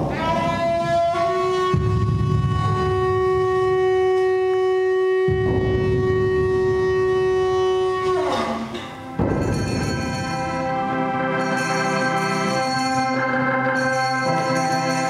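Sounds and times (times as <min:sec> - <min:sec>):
low rumbling noise: 0:00.0 - 0:11.3
loud held note: 0:00.0 - 0:15.0.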